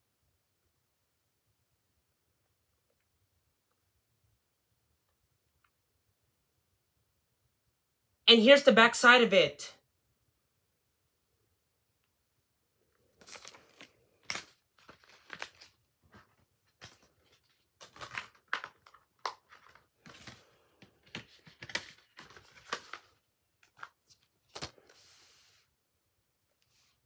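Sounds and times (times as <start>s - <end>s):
paper rustling and crinkling: 13.1s - 25.7s.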